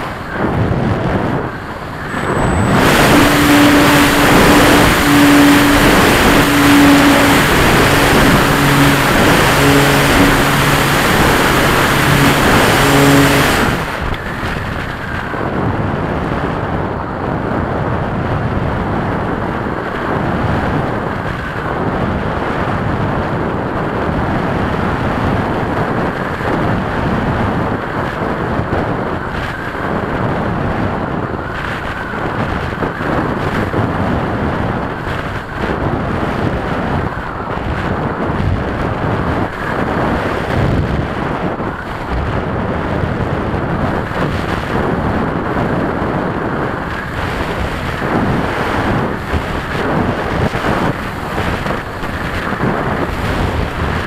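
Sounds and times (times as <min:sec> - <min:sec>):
model aeroplane motor droning: 0:00.0 - 0:16.2, 0:41.2 - 0:54.0
air rushing over microphone: 0:00.0 - 0:54.0.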